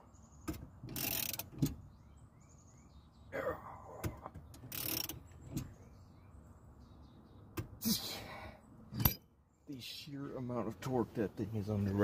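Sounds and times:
ratchet metal clicks: 0.9 - 1.6, 4.7 - 5.2.

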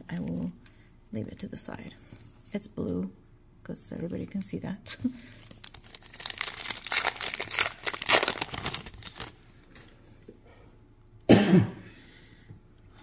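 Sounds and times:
foil wrapper crinkling and tearing: 5.2 - 9.4.

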